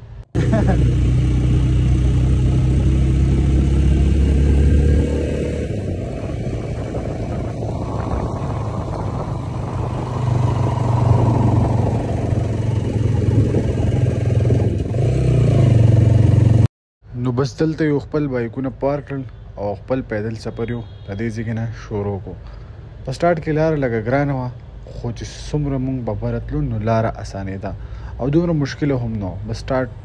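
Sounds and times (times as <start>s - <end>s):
motorcycle engine running: 0.4s - 16.7s.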